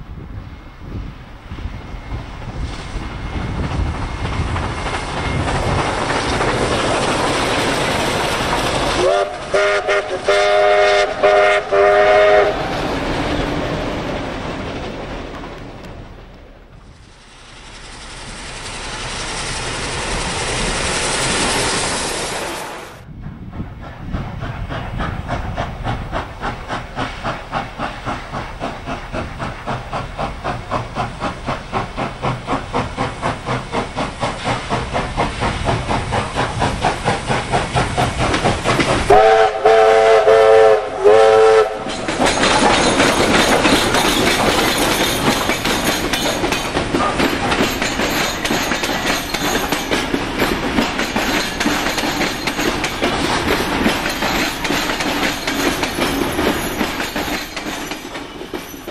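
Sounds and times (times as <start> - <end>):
hissing steam: 0.0 - 58.9
steam locomotive chuffing: 0.0 - 58.9
train wheel noise: 0.0 - 58.9
steam whistle blasts: 9.0 - 12.6, 39.1 - 41.9.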